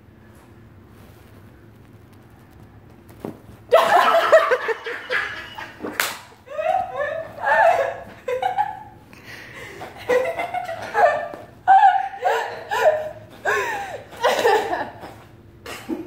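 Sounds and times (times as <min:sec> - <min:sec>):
person laughing loudly: 0:03.7 - 0:09.0, 0:09.6 - 0:15.2.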